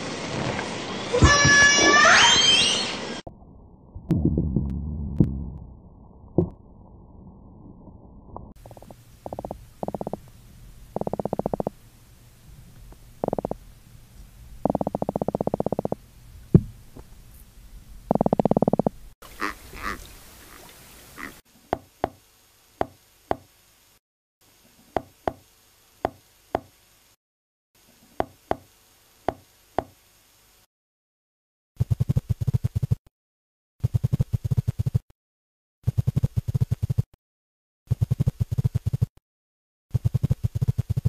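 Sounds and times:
fish drumming pulses: 4.0 - 10.2, 10.8 - 11.8, 13.2 - 13.6, 14.6 - 16.0, 18.1 - 21.4
seahorse clicking: 8.6 - 10.2, 11.0 - 11.7.

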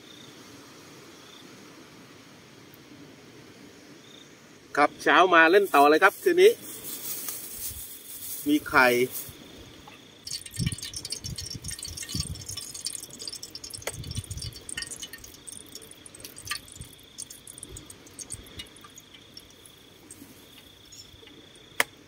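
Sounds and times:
insect trill: 4.0 - 22.0
eggs sizzling in a pot: 10.2 - 21.6
eggshells cracking: 10.3 - 21.3.

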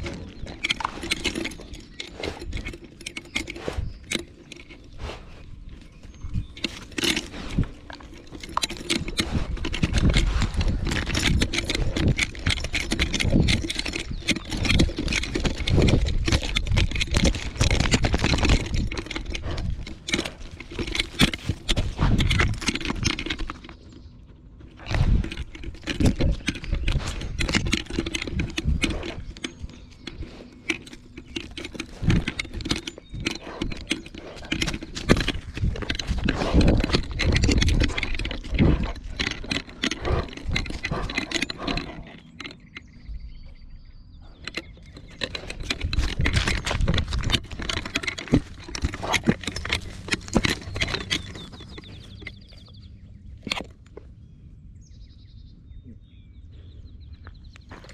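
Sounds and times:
dog paws crunching gravel: 44.8 - 53.8.

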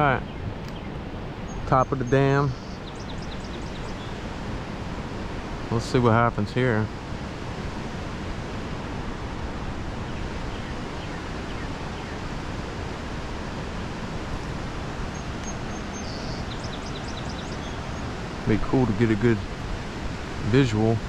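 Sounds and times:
water rushing over dam: 4.1 - 21.0
faint high chirps: 15.1 - 18.2.

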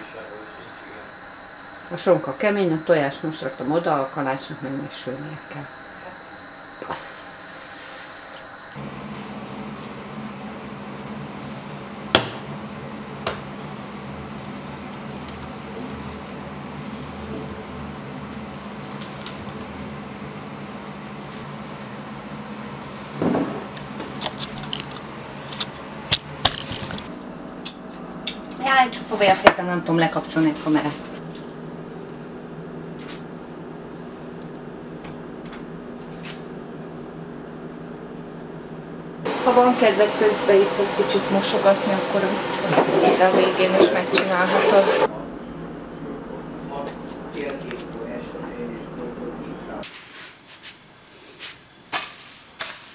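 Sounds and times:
steady low hum: 0.0 - 49.9
low hum and hiss: 45.0 - 49.9.

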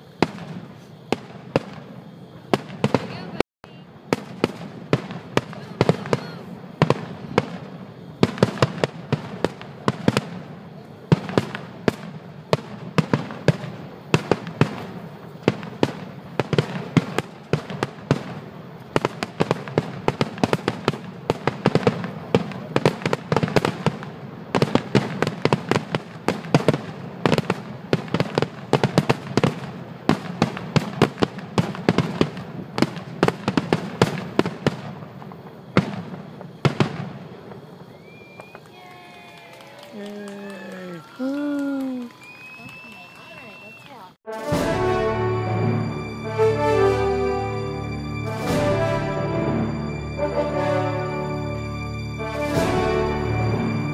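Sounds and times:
fireworks bursting: 0.0 - 53.9.

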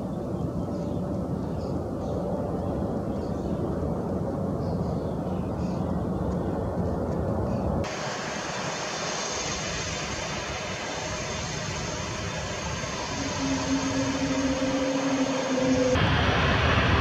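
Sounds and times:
jet engines rushing: 7.8 - 17.0.

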